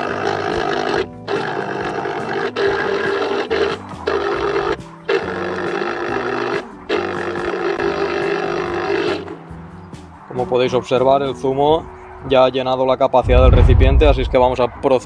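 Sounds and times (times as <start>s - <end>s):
electric citrus juicer motor: 0.0s - 9.3s.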